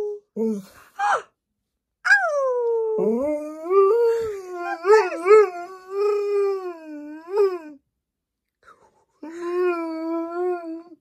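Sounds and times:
dog howling: 2.1s - 7.8s.

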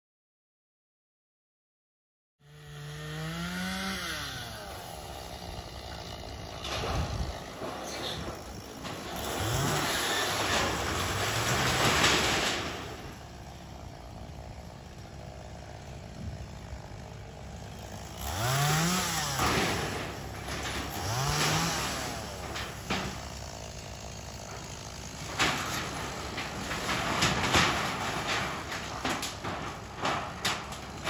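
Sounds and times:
chainsaw revving: 2.4s - 31.0s
wood knocks and cracks: 6.5s - 31.0s.

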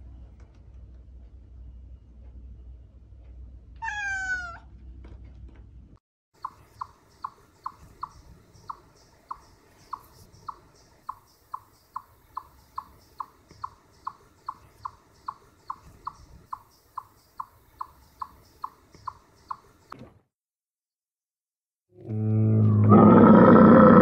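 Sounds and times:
faint background noise: 0.0s - 20.2s
small animal chirping: 6.4s - 19.9s.

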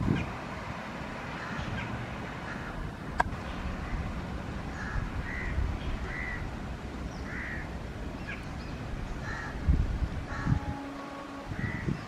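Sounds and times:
crows cawing: 2.4s - 2.8s, 4.7s - 6.4s, 7.2s - 7.7s, 9.2s - 9.6s, 10.3s - 10.6s, 11.6s - 11.9s.

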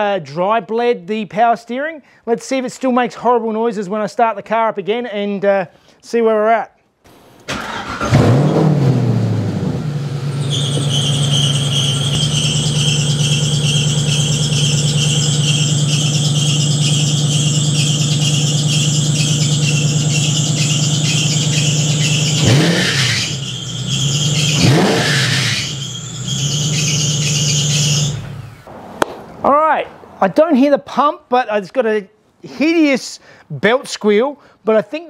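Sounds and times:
car engine idling: 7.1s - 28.7s
engine throttle blips: 7.5s - 28.7s
drive belt squealing: 10.3s - 28.7s.

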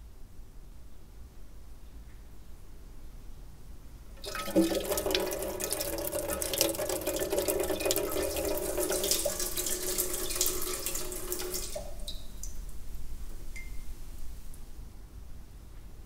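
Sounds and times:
tap water pouring into jar: 4.2s - 12.6s
water drips plinking: 4.2s - 12.8s, 13.5s - 13.9s.

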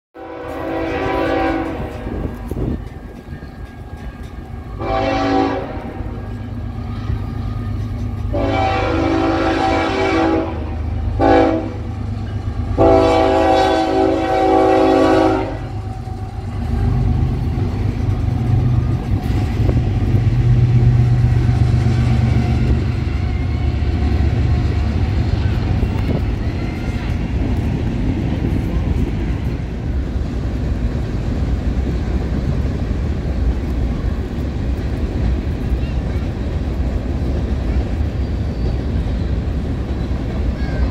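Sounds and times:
locomotive air horn: 0.2s - 2.4s, 4.6s - 7.4s, 8.3s - 12.1s, 12.7s - 16.0s
train wheels on rails: 0.2s - 40.9s
diesel engines rumbling: 0.3s - 40.9s.

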